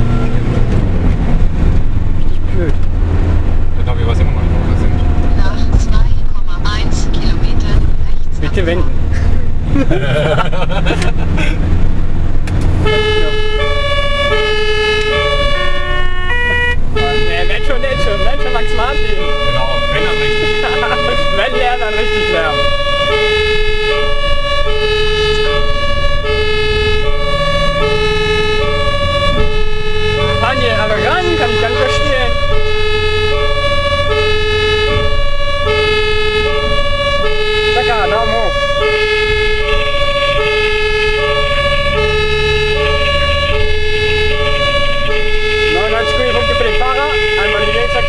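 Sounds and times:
two-tone siren: 0.0s - 0.5s, 12.8s - 48.0s
engine and road noise: 0.0s - 48.0s.

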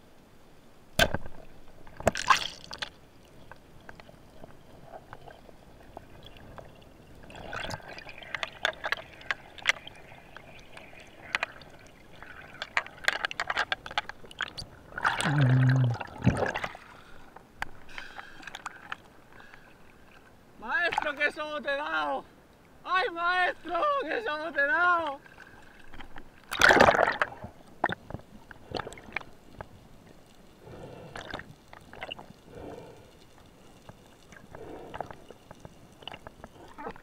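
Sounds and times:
speargun firing underwater: 1.0s - 1.3s
bubbling water: 1.4s - 20.2s, 25.2s - 33.0s, 33.6s - 37.0s.

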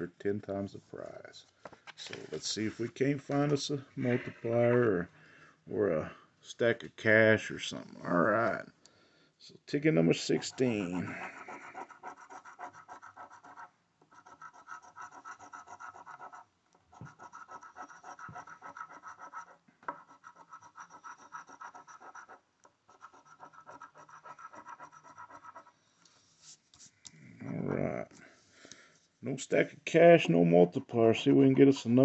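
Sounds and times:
coin scratching a ticket: 10.1s - 25.7s.

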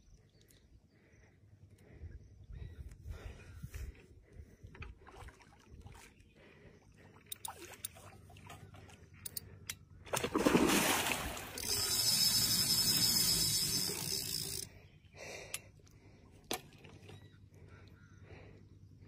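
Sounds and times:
fish splashing in water: 10.1s - 14.1s.

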